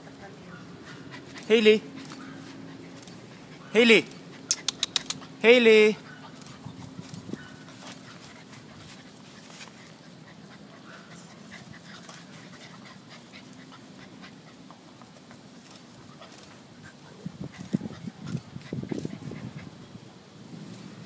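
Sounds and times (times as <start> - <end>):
dog panting: 0.3 - 5.4, 6.0 - 19.9
light clicks and rustles: 1.2 - 3.4, 6.1 - 16.8.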